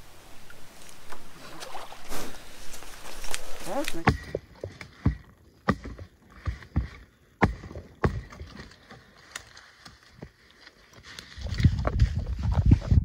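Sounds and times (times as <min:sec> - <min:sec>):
irregular knocks and thumps: 0:03.9 - 0:09.1.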